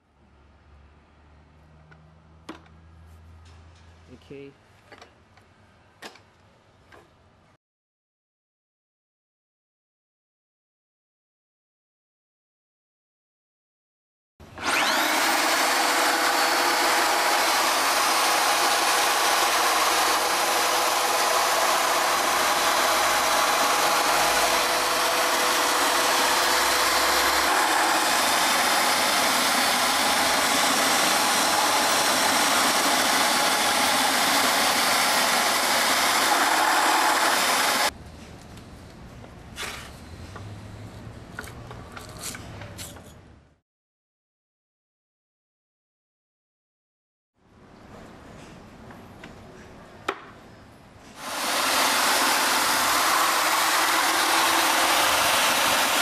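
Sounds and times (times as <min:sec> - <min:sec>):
electric polisher whining: 0:14.6 - 0:37.9, 0:51.2 - 0:56.0.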